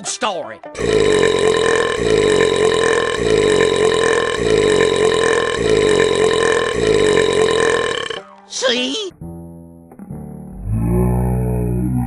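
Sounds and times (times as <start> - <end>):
long cartoon burp: 0.8 - 8.3.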